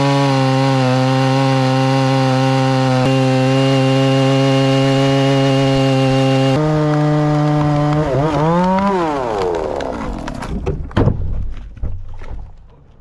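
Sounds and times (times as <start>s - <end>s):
chainsaw running: 0.0s - 10.6s
tree wood cracking: 0.0s - 13.0s
tree falling thud: 7.3s - 12.6s.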